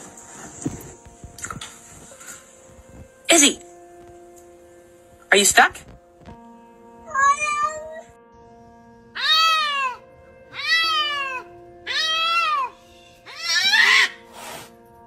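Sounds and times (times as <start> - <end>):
cat meowing: 7.1 - 8.1, 9.2 - 12.7, 13.3 - 14.2.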